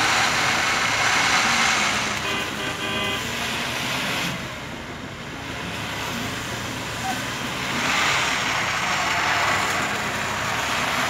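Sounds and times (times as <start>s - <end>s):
diesel engine working hard: 0.0s - 11.0s
car horn: 2.1s - 3.4s.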